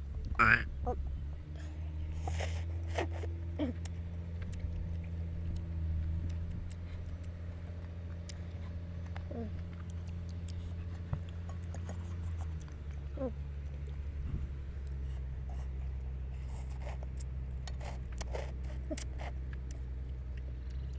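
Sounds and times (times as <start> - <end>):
steady low hum: 0.0 - 20.9
person slurping noodles: 17.8 - 19.4.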